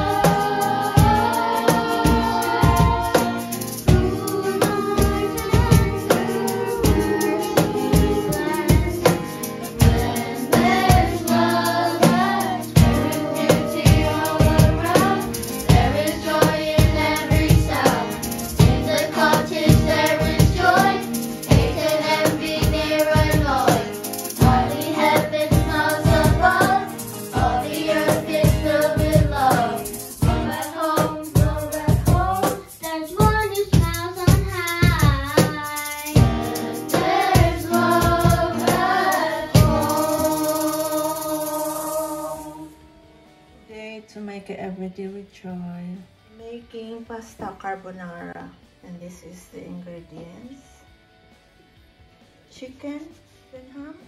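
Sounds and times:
children singing: 0:00.0 - 0:32.8, 0:36.1 - 0:42.7
steady beat: 0:00.0 - 0:42.3
acoustic guitar: 0:00.0 - 0:54.0.

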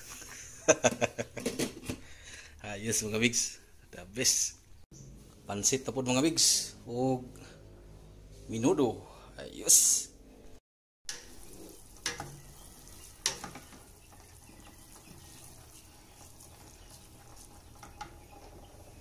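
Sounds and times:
faint steady sizzle: 0:11.1 - 0:19.0.

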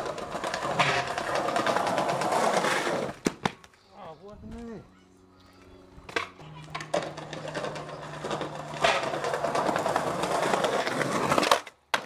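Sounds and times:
skateboard wheels rolling on paving: 0:00.0 - 0:03.6, 0:06.0 - 0:12.0
wheels clicking over slab joints: 0:00.0 - 0:03.6, 0:06.0 - 0:12.0.

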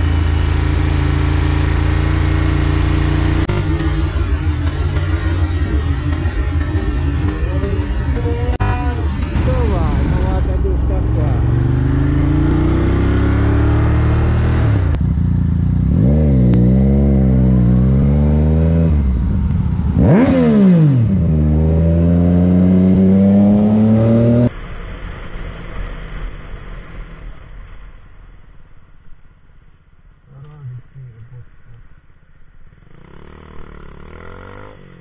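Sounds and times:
motorcycle engine accelerating: 0:00.0 - 0:24.5, 0:32.7 - 0:35.0
motorcycle engine revving: 0:00.0 - 0:24.5, 0:32.7 - 0:35.0
muffled traffic noise: 0:00.0 - 0:35.0.

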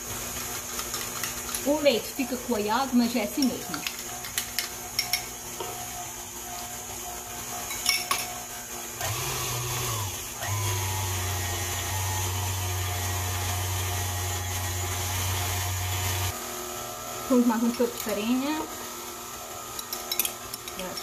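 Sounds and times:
spoon clinking on glass cup: 0:04.6 - 0:05.3, 0:07.7 - 0:08.3
stand mixer motor humming: 0:08.7 - 0:17.6.

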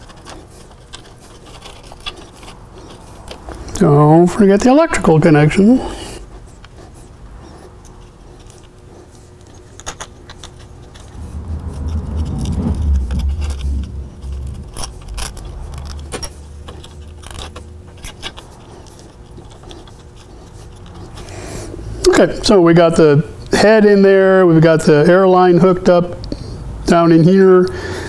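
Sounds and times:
metal connectors clicking and rattling: 0:00.0 - 0:03.8, 0:09.4 - 0:11.8, 0:13.1 - 0:21.2
low rumble: 0:11.0 - 0:18.0.

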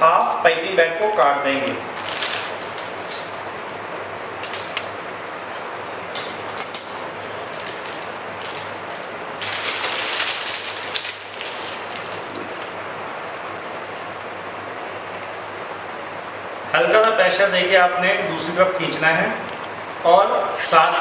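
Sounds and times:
plastic bag crinkling: 0:01.9 - 0:03.0, 0:07.4 - 0:12.5.

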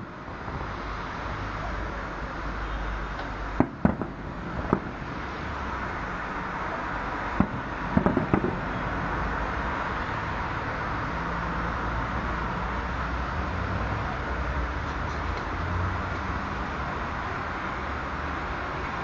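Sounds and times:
steady rushing background noise: 0:00.0 - 0:19.0
fireworks bangs: 0:03.6 - 0:05.5, 0:07.3 - 0:08.9.

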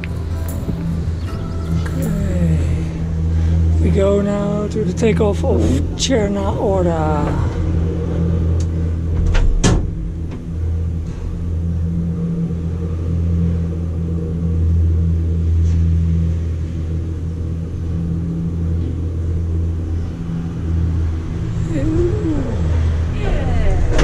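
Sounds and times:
gondola cabin rumble and hum: 0:00.0 - 0:24.0.

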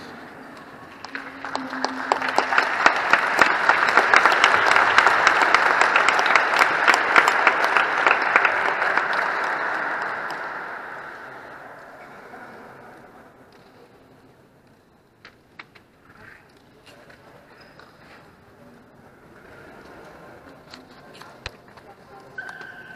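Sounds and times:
applause: 0:00.0 - 0:12.8.

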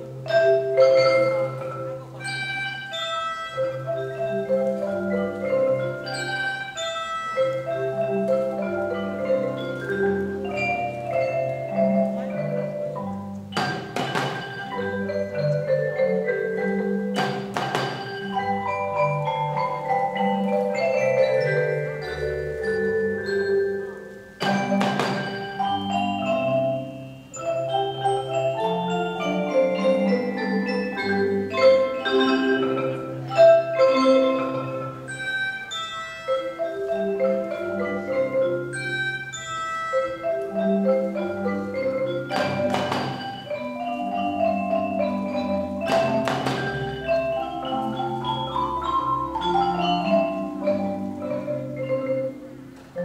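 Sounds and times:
mallet percussion ensemble: 0:00.0 - 0:53.0
sharp noisy percussion strikes: 0:13.5 - 0:14.8, 0:17.1 - 0:18.4, 0:24.4 - 0:25.6.

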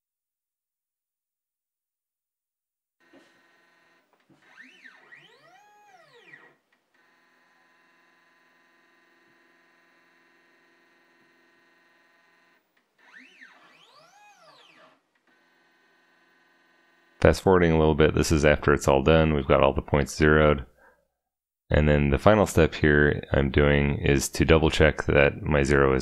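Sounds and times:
stepper motors whining: 0:03.1 - 0:12.4, 0:13.0 - 0:17.2.

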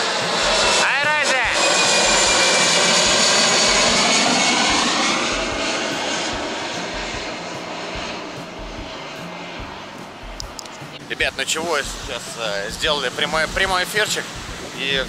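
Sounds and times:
jet engine roar: 0:00.0 - 0:15.0.

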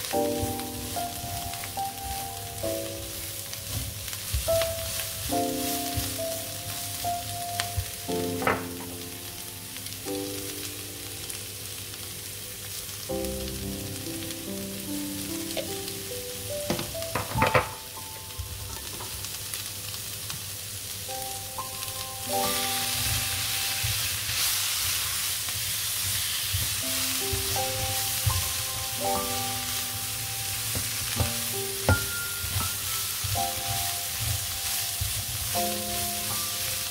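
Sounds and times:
beans sizzling in a wok: 0:00.0 - 0:36.9
soft background music: 0:00.0 - 0:36.9
spatula scraping a wok: 0:22.6 - 0:26.8.

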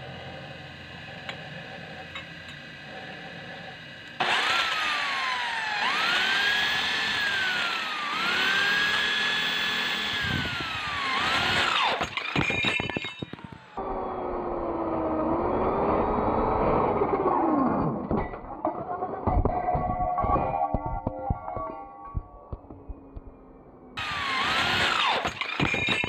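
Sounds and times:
electric drill boring into steel: 0:02.1 - 0:18.1, 0:24.0 - 0:26.0
drill bit clatter: 0:04.2 - 0:13.8, 0:24.0 - 0:26.0.

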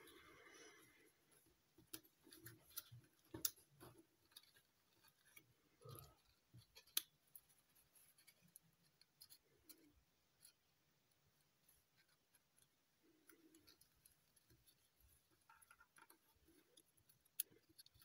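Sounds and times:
small paper clicks: 0:12.0 - 0:18.0.

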